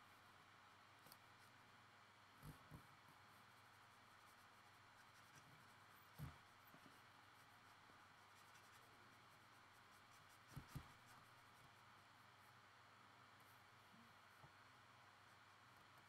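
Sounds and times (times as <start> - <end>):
marker strokes on paper: 2.4 - 12.7.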